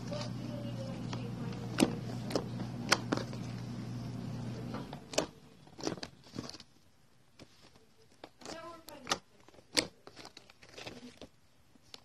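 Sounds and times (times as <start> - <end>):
steady low hum: 0.0 - 8.1.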